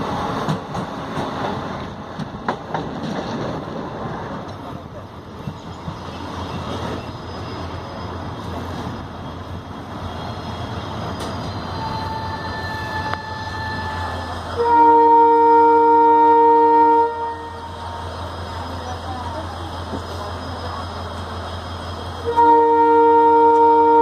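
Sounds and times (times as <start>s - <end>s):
diesel locomotive humming: 0.0s - 24.0s
locomotive horn: 11.8s - 17.7s, 22.2s - 24.0s.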